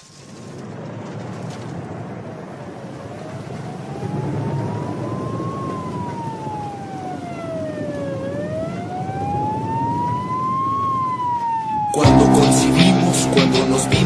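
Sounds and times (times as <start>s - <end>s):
rumbling background noise: 0.0s - 10.7s
siren wailing: 3.0s - 14.0s.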